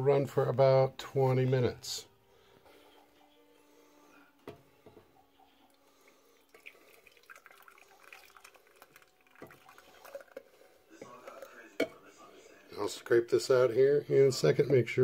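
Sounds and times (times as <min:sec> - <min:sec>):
thick liquid pouring and dripping: 0:05.7 - 0:11.6
small splashes: 0:06.5 - 0:10.5.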